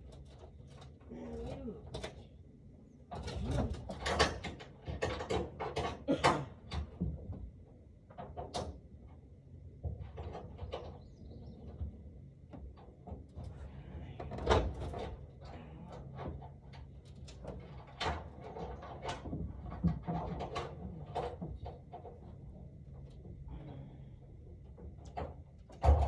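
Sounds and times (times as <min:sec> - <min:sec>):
objects knocking and clattering: 0:03.1 - 0:07.5, 0:12.5 - 0:26.0.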